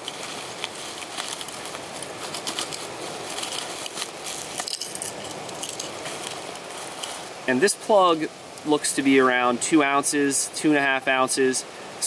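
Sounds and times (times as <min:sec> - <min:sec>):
bubble wrap crinkling: 0:00.0 - 0:07.3.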